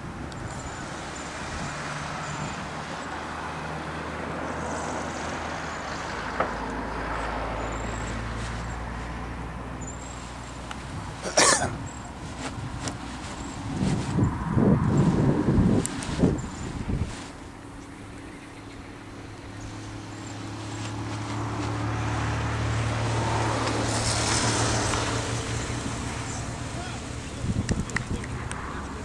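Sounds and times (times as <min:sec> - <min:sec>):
wind buffeting microphone: 0:10.7 - 0:18.2, 0:19.5 - 0:29.0.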